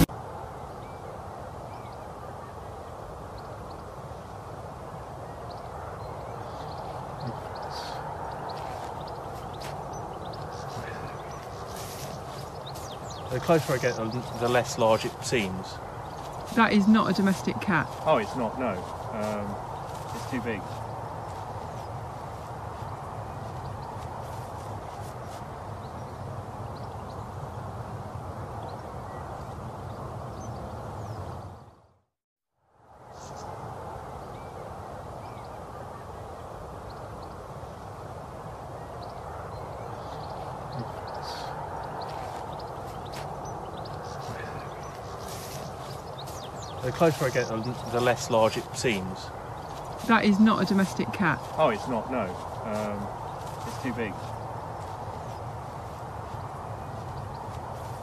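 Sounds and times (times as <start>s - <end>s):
outdoor background noise: 0.0s - 58.0s
faint bird chirps: 5.2s - 22.0s, 33.0s - 33.6s.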